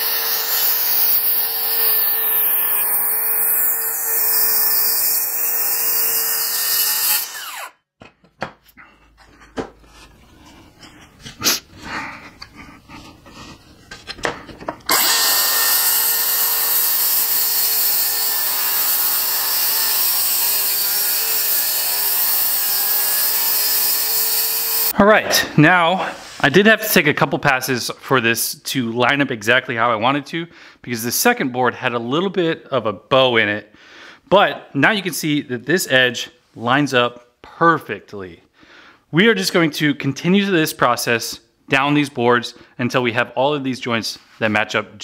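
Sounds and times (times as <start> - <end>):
circular saw cutting wood: 0.0 - 7.7, 14.9 - 25.0.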